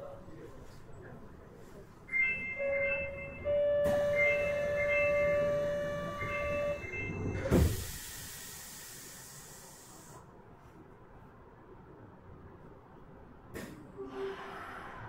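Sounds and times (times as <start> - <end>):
train door buzzer: 2.2 - 8.0
train doors shutting with a thump: 2.2 - 9.0, 13.5 - 15.0
air hiss: 7.7 - 10.2.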